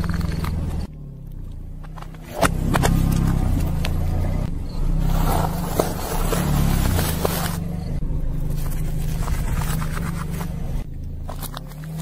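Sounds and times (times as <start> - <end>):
car engine running low: 0.0 - 12.0
tyre crushing objects: 5.0 - 7.7.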